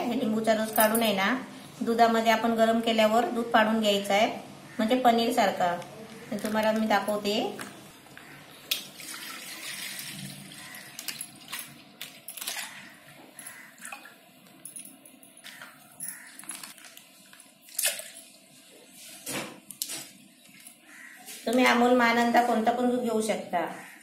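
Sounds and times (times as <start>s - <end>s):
milk pouring into a bowl: 8.9s - 12.8s
plastic pouch crinkling: 15.5s - 18.1s.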